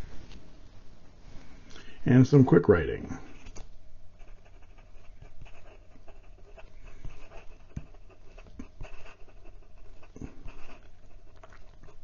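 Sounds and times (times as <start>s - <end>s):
pen nib scratching on paper: 4.2s - 12.0s.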